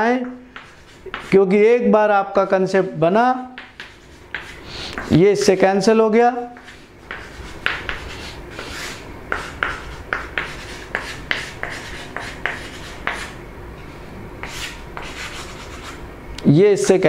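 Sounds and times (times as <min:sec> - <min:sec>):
chalk tapping and scratching on chalkboard: 0:00.0 - 0:01.6, 0:03.4 - 0:05.7, 0:06.4 - 0:13.4, 0:14.4 - 0:16.0.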